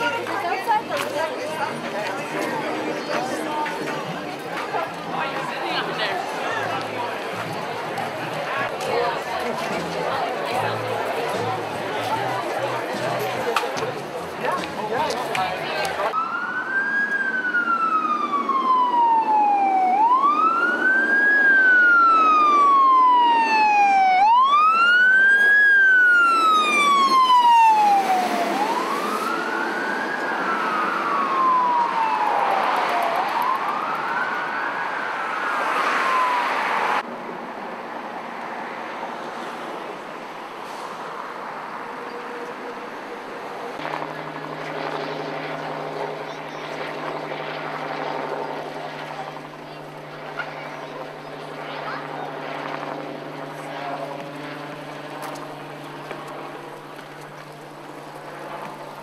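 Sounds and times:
street noise: 0:00.0 - 0:59.0
fire engine siren wailing: 0:15.9 - 0:37.1, 0:41.7 - 0:59.0.

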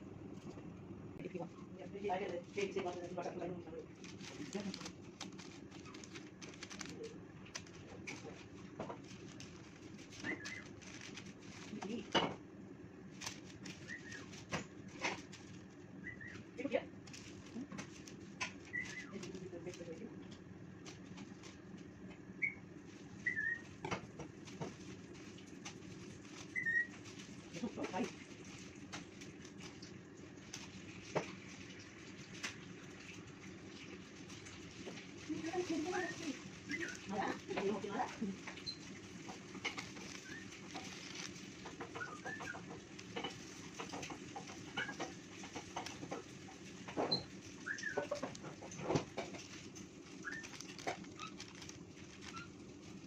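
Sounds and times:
low room hum: 0:00.0 - 0:53.0
birds clucking chirps: 0:13.1 - 0:19.6, 0:20.6 - 0:32.0, 0:35.9 - 0:53.0
high bird-like chirps: 0:23.2 - 0:23.7, 0:26.5 - 0:27.0.

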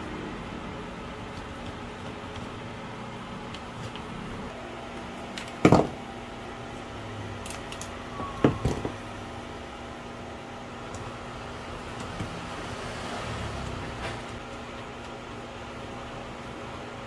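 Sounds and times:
steady background hum: 0:00.0 - 0:17.0
tools knocking on workbench: 0:05.6 - 0:06.0, 0:08.4 - 0:09.0.

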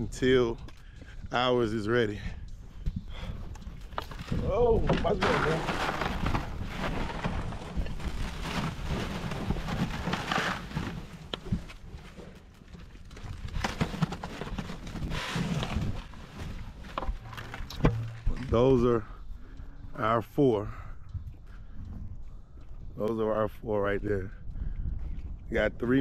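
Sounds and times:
low rumble: 0:15.6 - 0:26.0.

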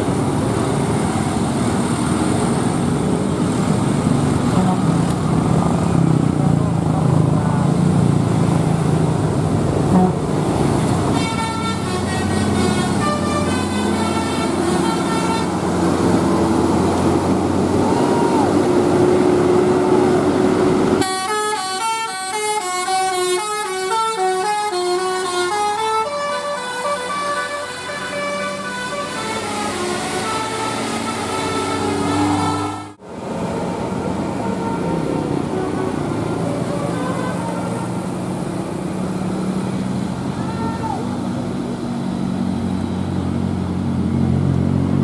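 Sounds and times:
bus engine: 0:00.0 - 0:45.0
traffic noise: 0:00.0 - 0:45.0
multi-tone musical bus horn: 0:04.5 - 0:05.1, 0:09.9 - 0:10.4, 0:11.1 - 0:15.7, 0:21.0 - 0:38.4.

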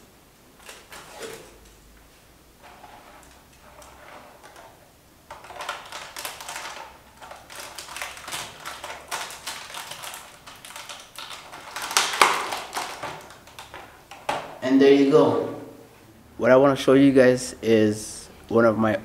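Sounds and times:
plastic bottle crinkling: 0:02.7 - 0:14.6.

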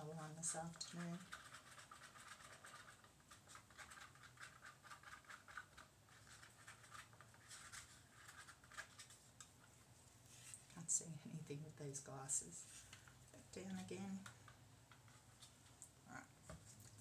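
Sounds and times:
stirrer scraping paper cup: 0:00.0 - 0:09.5.

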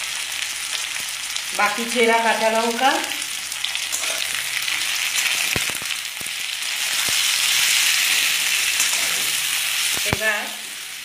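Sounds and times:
vegetables sizzling in oil: 0:00.0 - 0:11.0.

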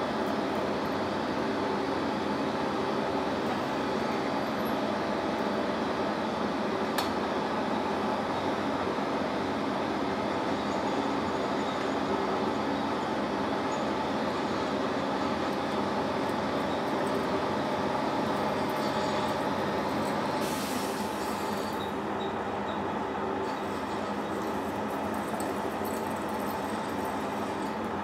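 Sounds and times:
drill cutting metal hissing: 0:20.4 - 0:21.8.

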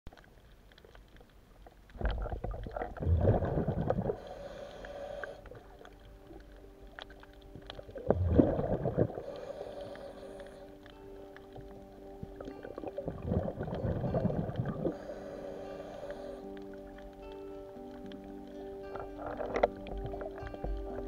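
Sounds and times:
exhaled bubbles rumbling underwater: 0:00.2 - 0:17.2, 0:17.8 - 0:21.0
regulator hiss: 0:14.8 - 0:16.6.

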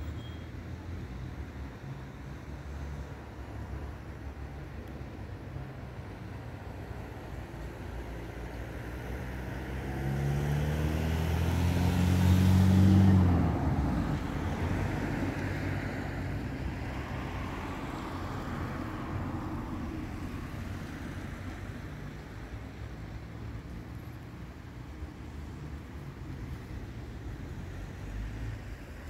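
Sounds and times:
car driving past: 0:08.9 - 0:22.1.

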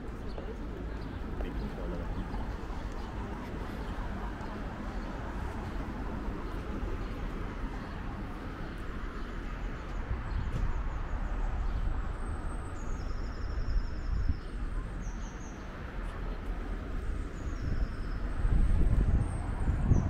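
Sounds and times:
city traffic rumble: 0:00.0 - 0:20.0
small birds twittering: 0:00.0 - 0:20.0
wind on microphone: 0:17.0 - 0:20.0.

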